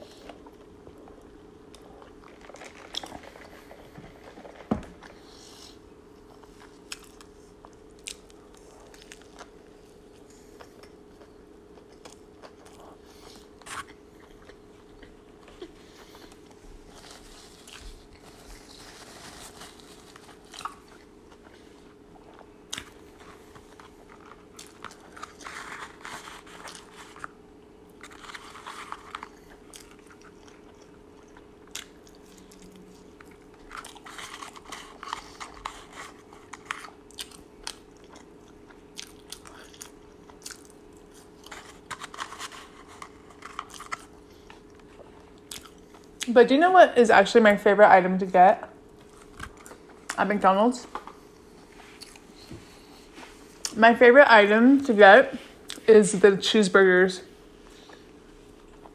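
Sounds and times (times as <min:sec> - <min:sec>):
faint steady hum: 0:00.0 - 0:58.9
person chewing and biting: 0:00.1 - 0:46.3, 0:51.3 - 0:53.8.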